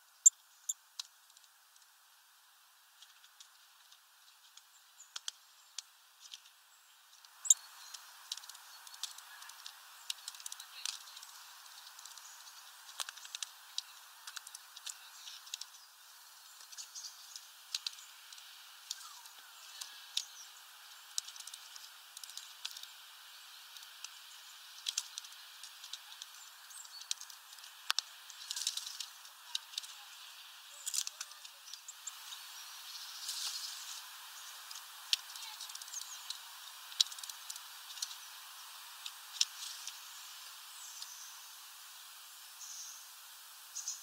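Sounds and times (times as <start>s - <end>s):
steady hiss: 0.0s - 44.0s
bird pecking at seeds: 7.2s - 41.2s.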